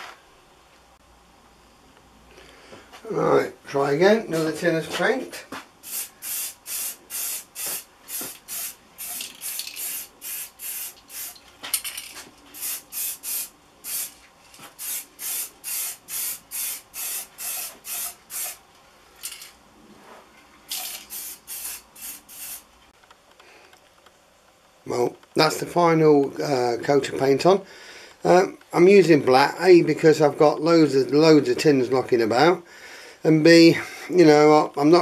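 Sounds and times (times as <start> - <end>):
spray paint can hissing: 5.8 - 11.4, 12.6 - 18.6, 20.7 - 22.7.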